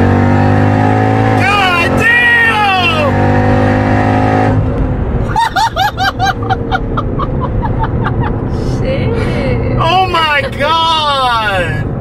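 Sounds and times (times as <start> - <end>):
low engine rumble: 4.6 - 12.0
person laughing: 5.2 - 9.8.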